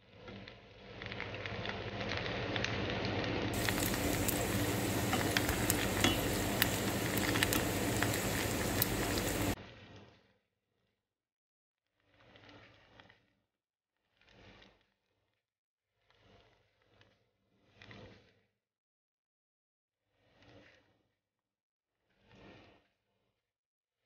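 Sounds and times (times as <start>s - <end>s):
pastries sizzling in hot oil: 3.5s - 9.6s.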